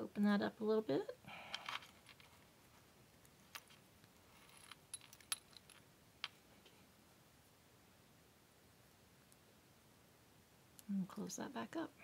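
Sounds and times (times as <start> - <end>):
metal chain links clinking: 3.5 - 5.8.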